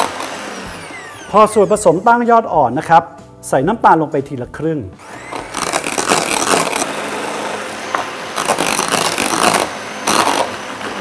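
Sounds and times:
electric hand mixer whirring: 0.0s - 2.4s, 5.0s - 11.0s.

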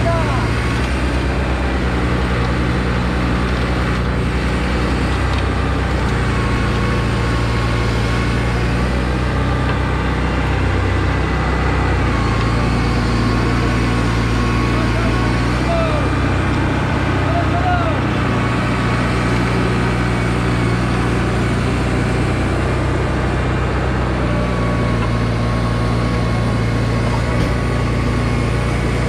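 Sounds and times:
diesel engine running: 0.0s - 29.0s.

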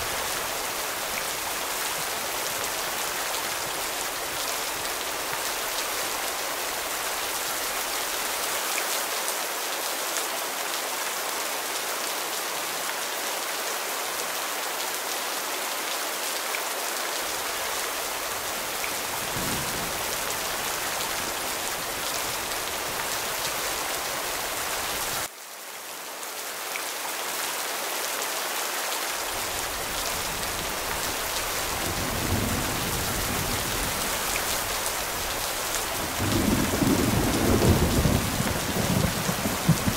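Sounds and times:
heavy rain: 0.0s - 39.9s
low thunder rumbling: 19.0s - 22.9s, 31.7s - 34.7s, 35.3s - 39.9s.

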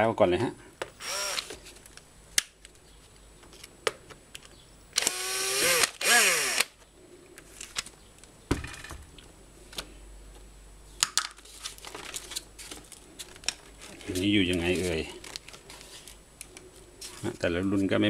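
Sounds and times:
cordless drill whine: 1.0s - 1.6s, 5.0s - 6.7s.

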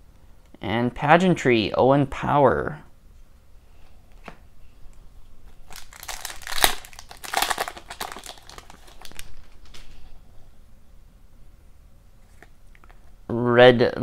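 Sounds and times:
foil wrapper crinkling: 5.6s - 10.0s
foil wrapper tearing: 5.7s - 9.8s.

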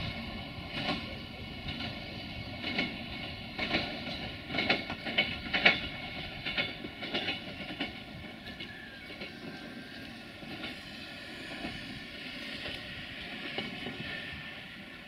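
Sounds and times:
train wheels clattering over points: 0.0s - 15.0s.

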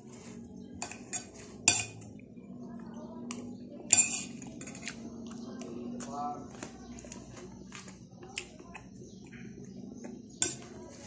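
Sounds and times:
metal spoon scraping a plate: 0.0s - 2.1s, 3.9s - 5.1s, 10.2s - 11.0s.

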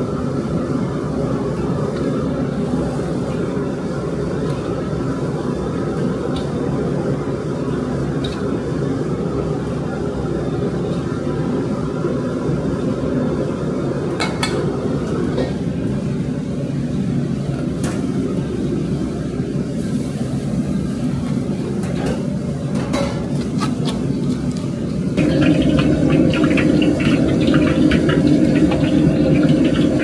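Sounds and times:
low rumbling roar: 25.2s - 30.0s.

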